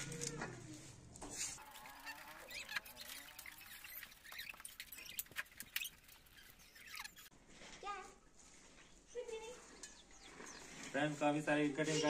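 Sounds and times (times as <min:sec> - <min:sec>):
faint calls: 0:01.6 - 0:07.3.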